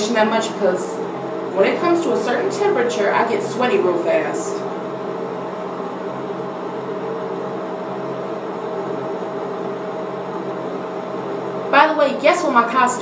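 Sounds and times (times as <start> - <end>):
appliance hum: 0.0 - 13.0.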